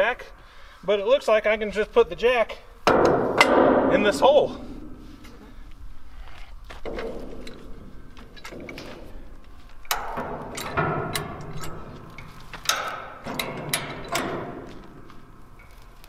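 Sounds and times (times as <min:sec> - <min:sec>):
jack mechanism metal clacks: 0:09.8 - 0:16.0.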